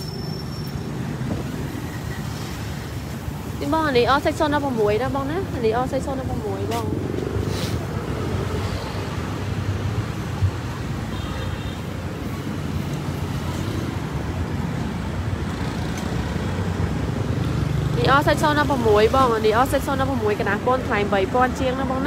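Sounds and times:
vehicle engines and traffic rumble: 0:00.0 - 0:22.0.

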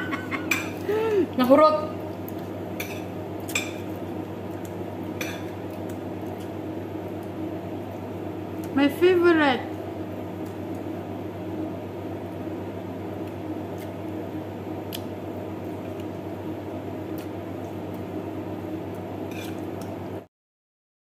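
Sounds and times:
steady low hum: 0:00.0 - 0:20.3
chewing and mouth sounds: 0:05.4 - 0:06.6, 0:14.8 - 0:15.1, 0:17.1 - 0:18.1.

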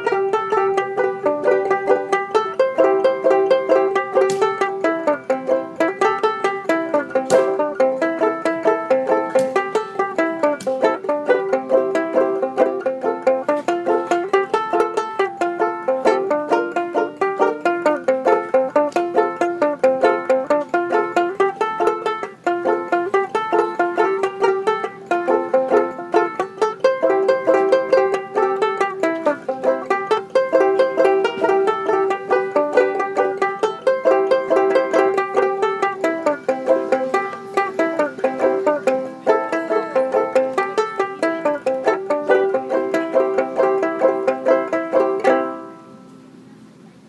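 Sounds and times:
banjo ukulele plucked folk tune: 0:00.0 - 0:47.0.

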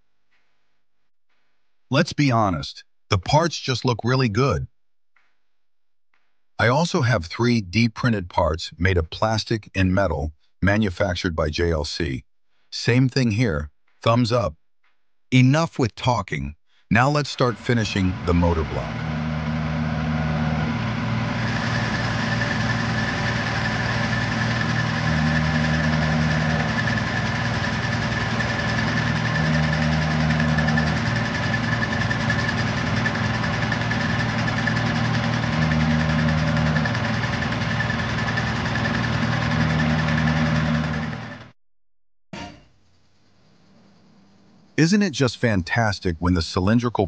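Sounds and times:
high cutter whine: 0:17.2 - 0:41.6
milling machine motor hum: 0:17.4 - 0:41.6.

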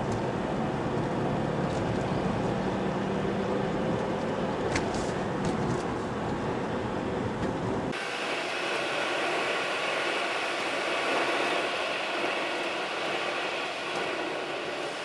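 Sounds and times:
car road and engine noise: 0:00.0 - 0:15.0
steady hiss: 0:07.9 - 0:15.0.

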